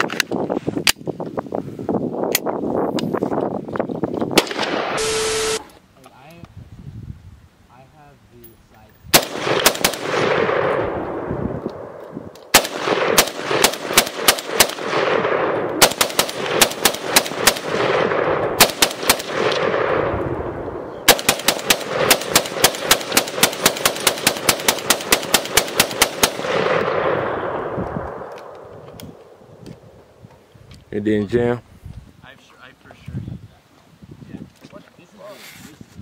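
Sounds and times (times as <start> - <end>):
gunshot echo: 4.4 - 5.3, 9.1 - 29.3
pistol rapid shots: 9.1 - 10.7, 12.5 - 19.9, 21.1 - 27.2.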